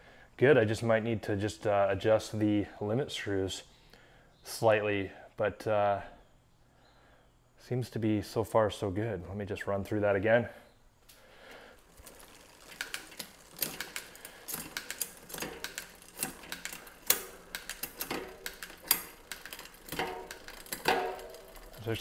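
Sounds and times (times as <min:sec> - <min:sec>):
bike chain shifting clicks: 0:11.5 - 0:22.0.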